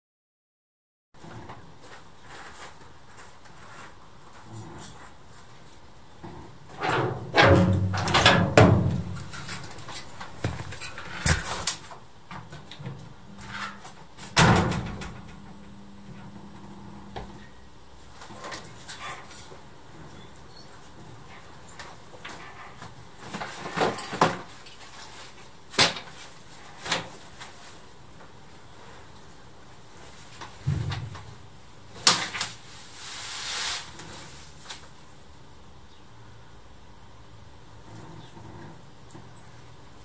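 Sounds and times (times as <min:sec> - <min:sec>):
footsteps: 0:09.0 - 0:11.6.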